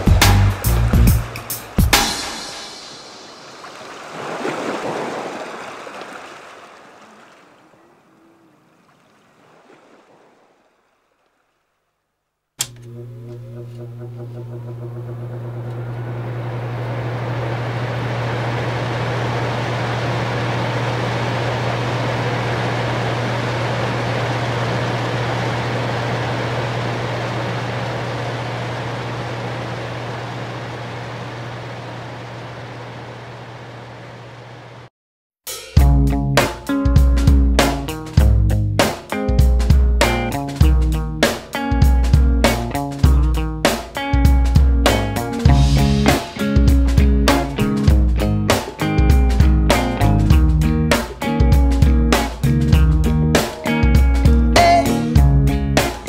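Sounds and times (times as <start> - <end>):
ocean surf roar: 0.0 - 11.5, 14.4 - 34.9, 45.0 - 55.2
strong low hum: 12.7 - 34.9, 44.6 - 56.0.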